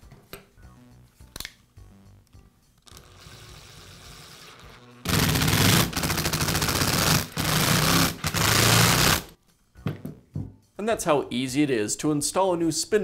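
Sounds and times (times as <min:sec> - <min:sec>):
fast mechanical rattle: 0:05.1 - 0:09.3.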